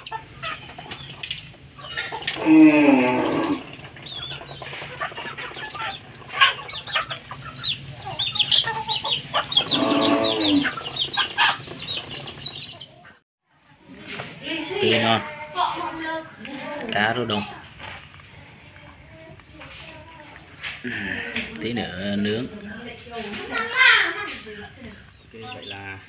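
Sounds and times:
chickens clucking: 0:00.0 - 0:13.2, 0:13.9 - 0:26.0
long falling chicken calls: 0:09.6 - 0:11.7.

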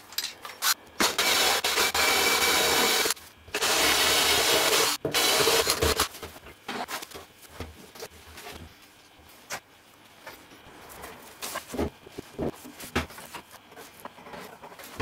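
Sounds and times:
drill boring into plywood: 0:01.0 - 0:06.1.

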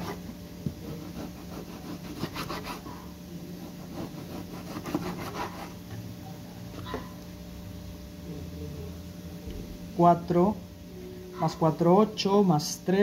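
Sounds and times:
knife sawing through meat: 0:00.8 - 0:03.0, 0:03.6 - 0:05.8.

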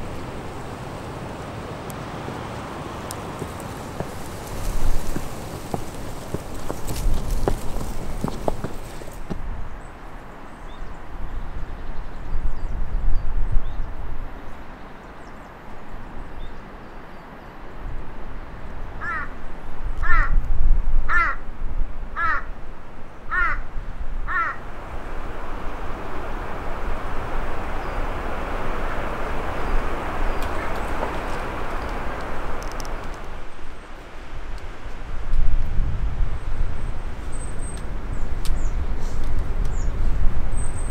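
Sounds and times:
broad hiss: 0:00.0 - 0:09.4, 0:24.6 - 0:33.8
bird calling: 0:24.3 - 0:24.8, 0:25.9 - 0:33.2.

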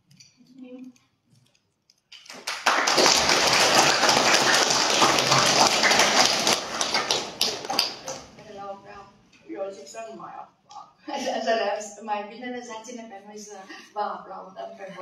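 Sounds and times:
audience applauding: 0:02.2 - 0:08.4.

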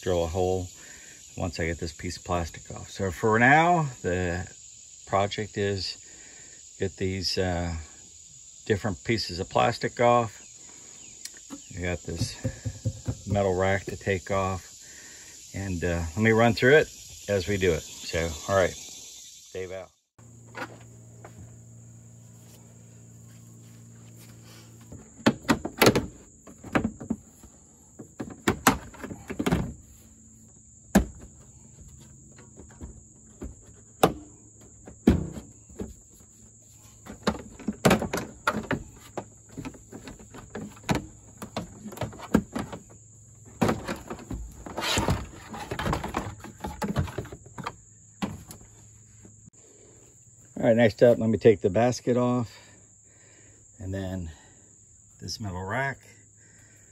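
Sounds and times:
high insect drone: 0:00.0 - 0:56.9
knocks and plastic rattles: 0:11.3 - 0:14.2, 0:24.8 - 0:30.0, 0:30.9 - 0:48.8.

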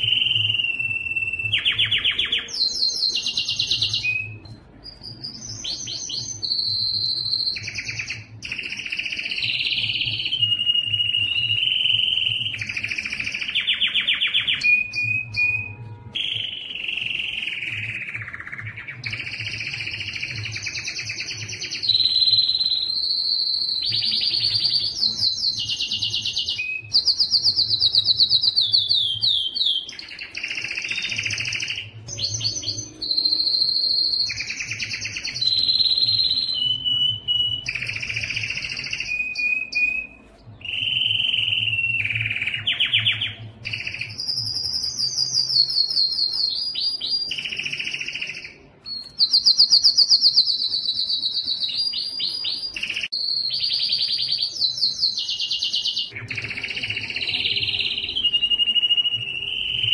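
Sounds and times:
canary singing trills: 0:00.0 - 0:59.9.

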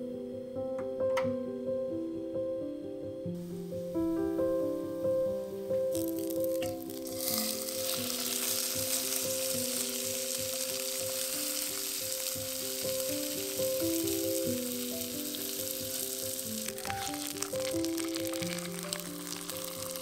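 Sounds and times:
instrumental background music: 0:00.0 - 0:20.0
fish sizzling in oil: 0:05.5 - 0:20.0.

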